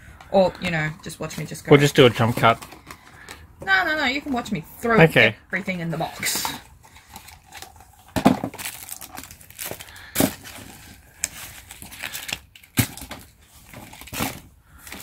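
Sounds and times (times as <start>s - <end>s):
packaging rustling: 6.2s - 15.0s
items knocking into cardboard box: 8.1s - 9.0s, 9.6s - 10.9s.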